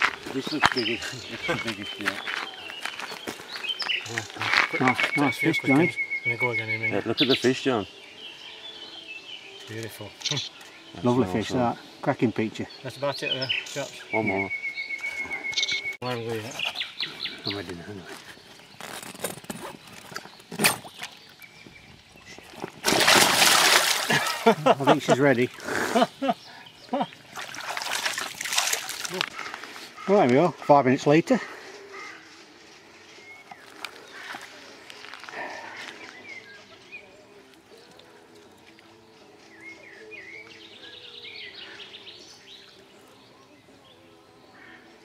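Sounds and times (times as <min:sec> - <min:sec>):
small birds chirping: 0:00.0 - 0:45.0
sling sloshing in water: 0:22.5 - 0:24.6, 0:27.3 - 0:29.3
fish splashing in water: 0:22.6 - 0:24.6, 0:27.3 - 0:29.4.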